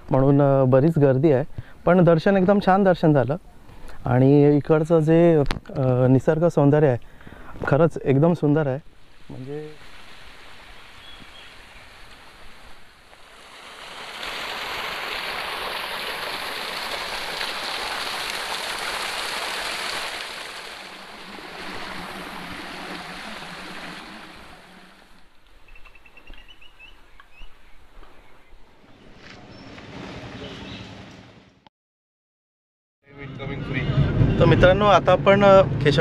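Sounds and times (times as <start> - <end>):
waterfall rushing and splashing: 9.0 - 25.4.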